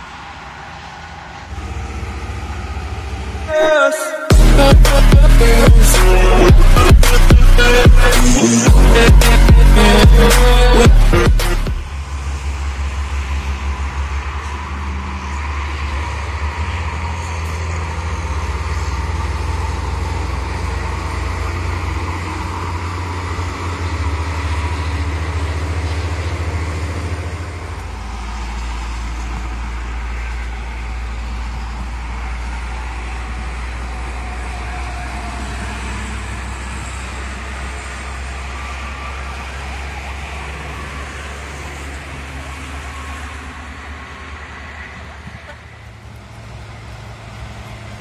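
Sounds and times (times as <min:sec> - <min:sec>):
highway traffic passing: 0:00.0 - 0:48.0
deep rumble: 0:04.3 - 0:12.2.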